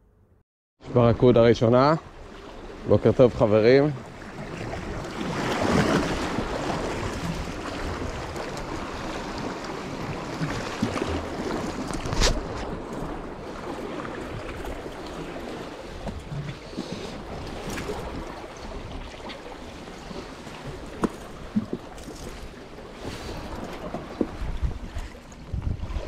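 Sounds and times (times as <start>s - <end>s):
sea waves washing ashore: 0.8s - 26.0s.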